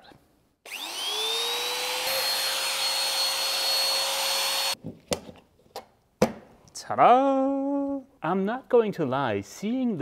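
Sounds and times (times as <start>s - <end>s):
trim router motor whining: 0.7s - 4.8s.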